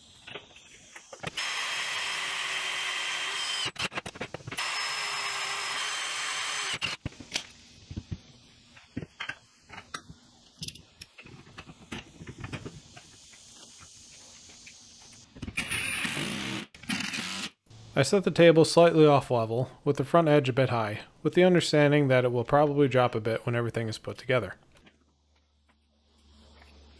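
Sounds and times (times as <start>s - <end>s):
power drill whining into steel: 1.1s - 7.0s, 15.6s - 17.6s.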